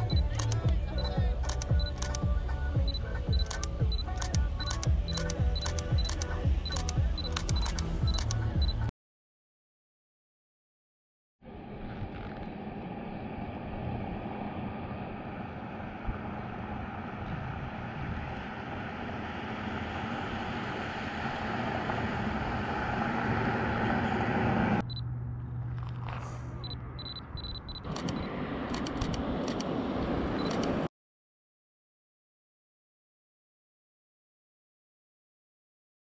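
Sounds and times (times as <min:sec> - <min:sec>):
wind and road noise: 0:00.0 - 0:08.9, 0:11.4 - 0:30.9
camera shutter clicks: 0:00.1 - 0:02.2, 0:03.4 - 0:08.4, 0:27.5 - 0:29.7.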